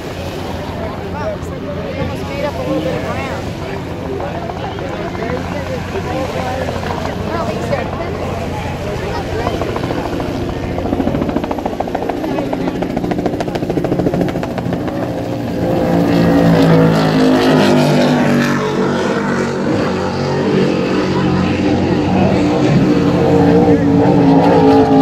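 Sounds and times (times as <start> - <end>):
boat engines passing at speed: 0.0 - 25.0.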